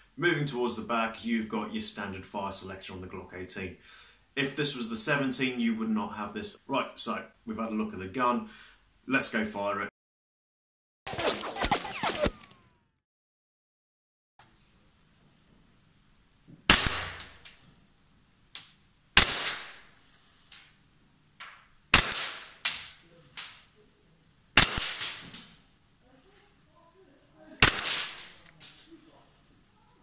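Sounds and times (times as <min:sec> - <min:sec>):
airsoft pistol shots: 0:16.7 - 0:17.5, 0:19.2 - 0:19.9, 0:21.9 - 0:23.6, 0:24.6 - 0:25.6, 0:27.6 - 0:28.5.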